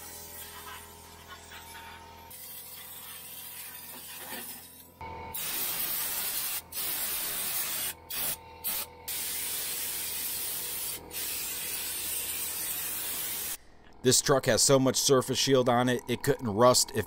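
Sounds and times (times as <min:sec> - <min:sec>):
spray gun hissing: 0:05.4 - 0:13.6.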